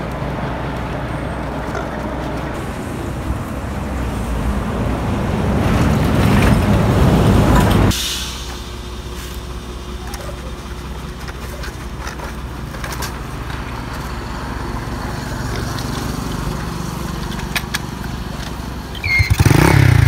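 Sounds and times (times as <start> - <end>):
short high squeal: 18.9 - 19.4.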